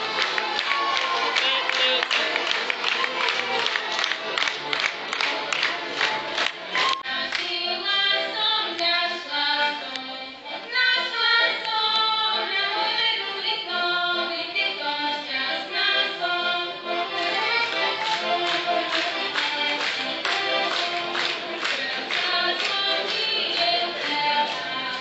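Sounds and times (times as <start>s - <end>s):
button accordion folk music: 0.0s - 25.0s
group singing: 7.0s - 16.8s, 17.4s - 25.0s.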